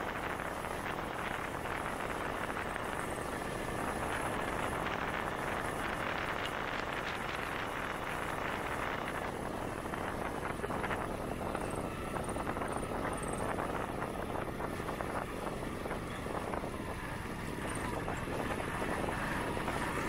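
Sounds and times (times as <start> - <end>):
motorcycle engine running: 0.0 - 20.0
wind rush over microphone: 0.0 - 20.0.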